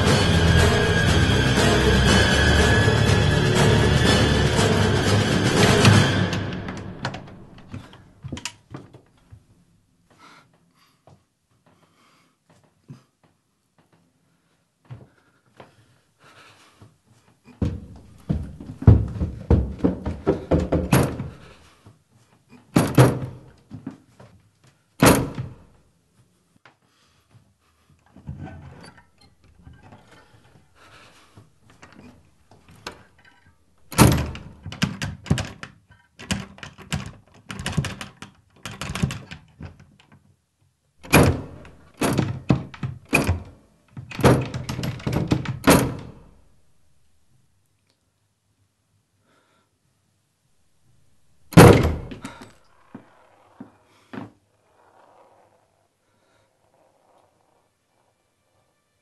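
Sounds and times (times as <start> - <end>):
door rattling: 0.0 - 8.5, 17.6 - 21.6, 22.8 - 23.5, 25.0 - 25.6, 31.8 - 39.8, 41.0 - 46.5, 51.4 - 53.1
heavy thuds on a door: 17.6 - 21.4, 51.5 - 52.4
rapid pounding on a door: 17.6 - 21.5.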